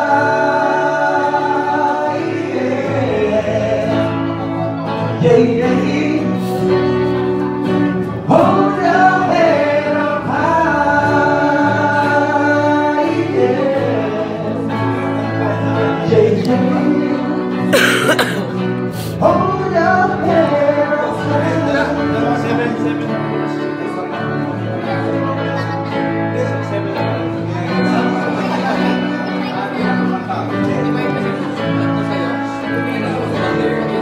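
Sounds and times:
men singing into microphones: 0.0 - 23.3
acoustic guitar: 0.0 - 34.0.

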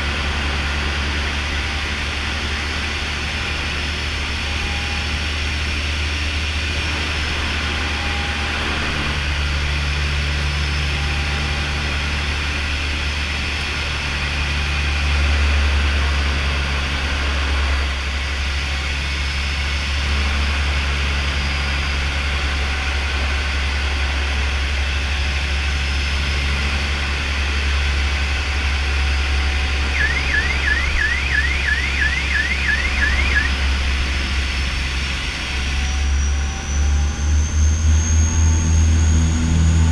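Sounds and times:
turboprop engines droning: 0.0 - 39.9
warbling cockpit alert tone: 29.7 - 33.8.

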